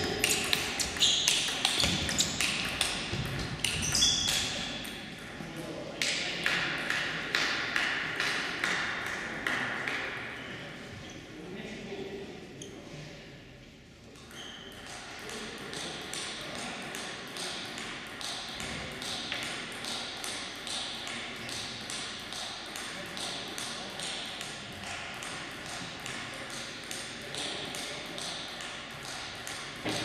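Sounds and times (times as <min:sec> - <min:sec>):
table tennis balls clicking: 0:00.0 - 0:05.3, 0:14.2 - 0:30.0.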